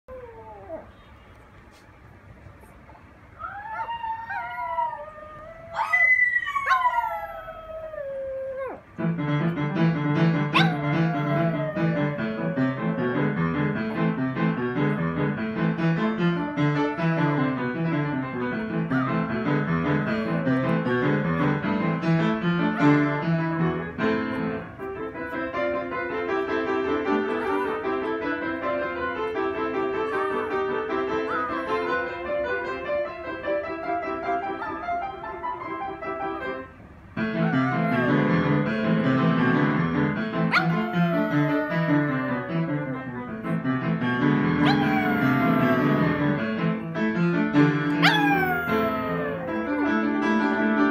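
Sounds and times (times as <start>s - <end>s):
small dog howling: 3.4s - 8.8s, 10.5s - 13.5s, 18.8s - 21.7s, 27.1s - 28.3s, 29.8s - 32.2s, 37.3s - 39.4s, 40.5s - 43.1s, 44.6s - 46.5s, 48.0s - 49.9s
piano music: 6.5s - 50.9s.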